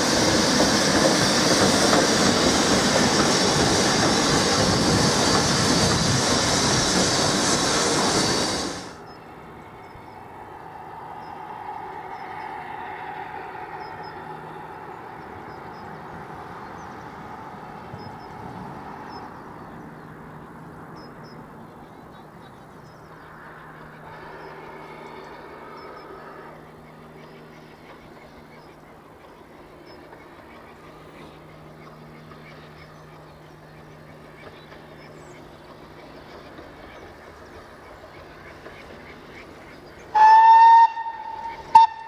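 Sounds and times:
steam train passing close: 0.0s - 42.0s
distant steam engine working slowly: 21.0s - 42.0s.

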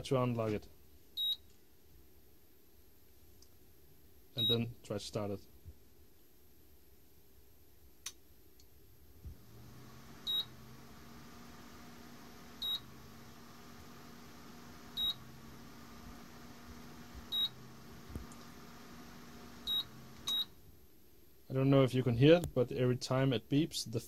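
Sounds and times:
cooling fan humming: 9.3s - 20.6s
short high error beeps: 12.6s - 12.8s, 15.0s - 15.2s, 17.3s - 17.5s, 19.7s - 20.5s.

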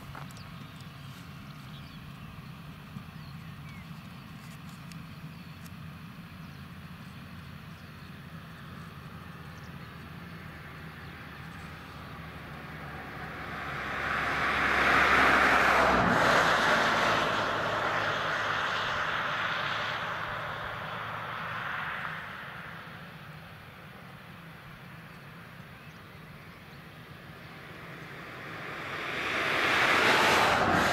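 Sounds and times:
broad rushing noise: 26.6s - 30.9s.

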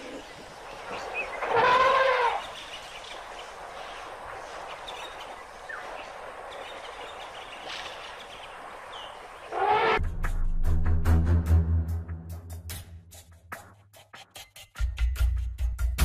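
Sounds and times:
elephant trumpeting: 1.4s - 2.5s, 9.5s - 10.0s.

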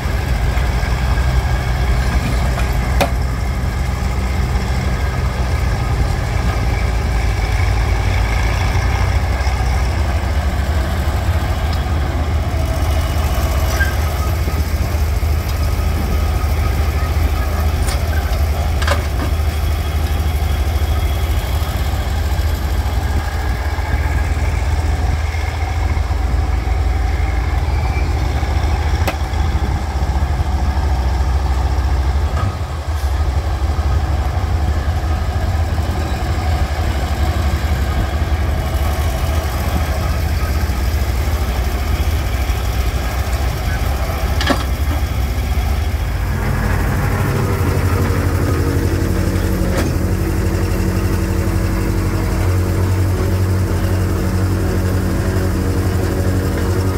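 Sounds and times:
excavator engine running: 0.0s - 56.9s.

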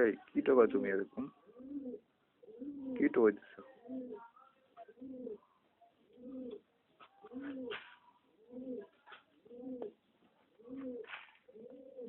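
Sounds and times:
pigeon cooing: 1.4s - 10.0s, 10.6s - 12.0s
pigeon pecking grain: 6.0s - 12.0s.

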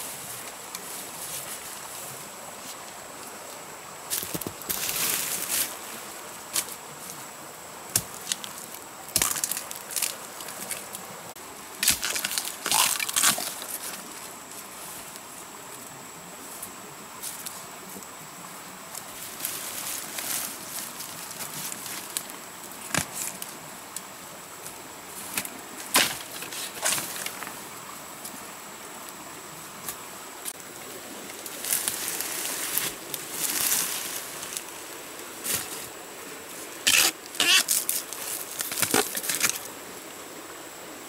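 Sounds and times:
dry leaves rustling: 4.1s - 6.7s, 19.2s - 22.4s, 30.8s - 35.9s, 36.6s - 39.7s.

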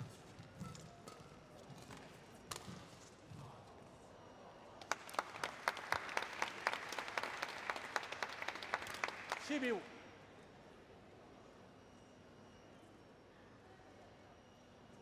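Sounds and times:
spectators clapping: 4.8s - 9.9s.

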